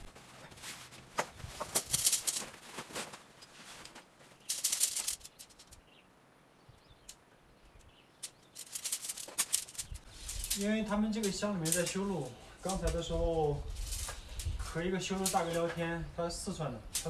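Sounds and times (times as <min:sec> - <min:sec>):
tent fabric rustling and flapping: 0:00.0 - 0:05.4
tent poles ticking: 0:00.0 - 0:06.0, 0:07.0 - 0:17.0.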